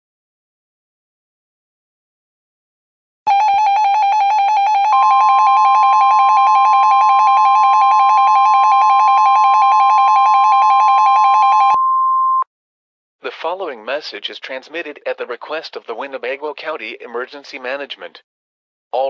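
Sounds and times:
steady single alarm tone: 3.3 - 12.5.

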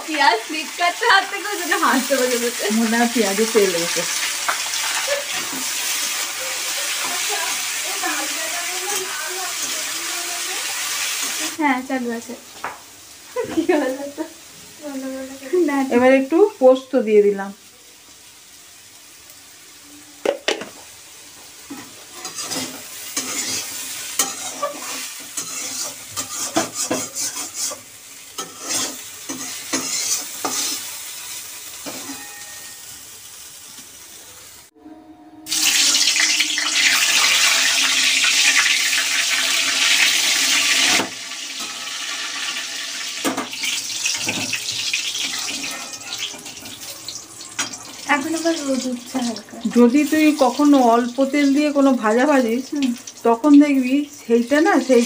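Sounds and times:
vegetables sizzling in hot oil: 0.0 - 34.8, 35.5 - 55.0
spatula scraping a steel wok: 21.7 - 31.0, 43.6 - 48.1.

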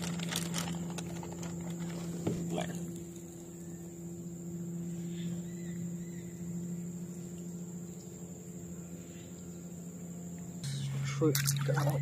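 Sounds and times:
insects droning: 0.0 - 12.0
steady low hum: 0.0 - 12.0.

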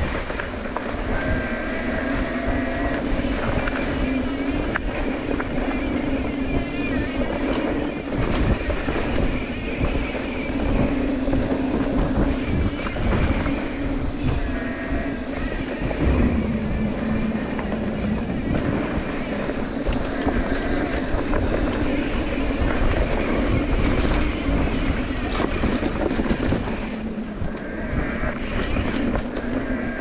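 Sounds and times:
wavering hum: 2.0 - 30.0
low rumble: 12.5 - 29.4
bike rattling over rocks: 15.4 - 30.0.

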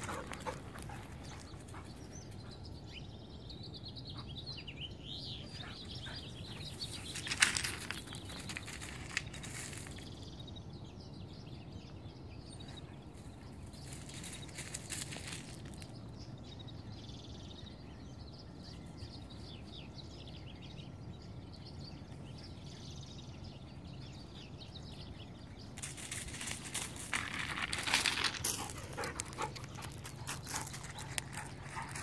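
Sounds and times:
footsteps on gravel: 0.0 - 1.5, 6.6 - 10.1, 13.7 - 16.0, 25.8 - 32.0.

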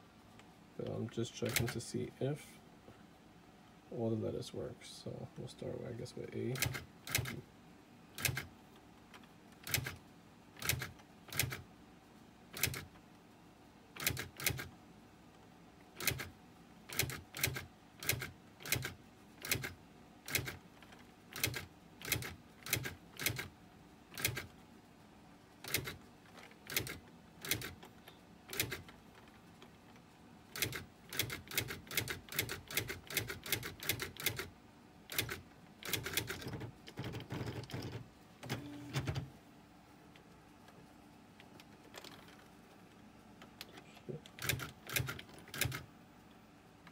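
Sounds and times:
electric typewriter clacking: 6.5 - 7.4, 8.2 - 8.5, 9.6 - 10.0, 10.6 - 11.6, 12.6 - 12.9, 14.0 - 14.7, 16.0 - 16.3, 16.9 - 20.6, 21.3 - 23.5, 24.1 - 24.5, 25.6 - 26.0, 26.6 - 27.8, 28.5 - 28.9, 30.5 - 34.5, 35.1 - 39.2, 44.4 - 45.8.

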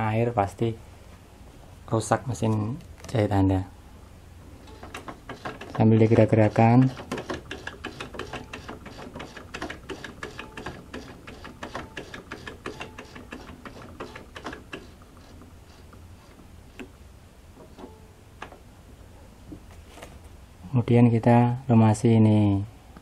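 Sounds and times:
sewing machine mechanism clicking: 4.6 - 16.9.

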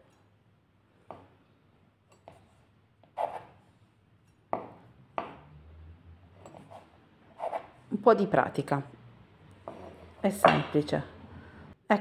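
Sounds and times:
dough scraping on board: 2.2 - 3.6, 6.4 - 7.8, 9.6 - 10.2.

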